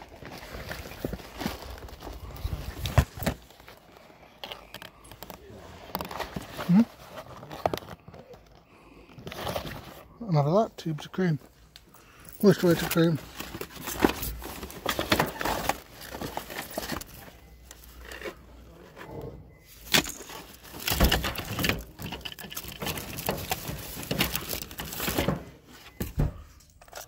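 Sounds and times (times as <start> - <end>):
plastic bags rustling: 0.0 - 10.6, 11.4 - 18.7, 19.6 - 26.0
rubbish clattering in a bin: 12.4 - 17.4, 18.0 - 27.0.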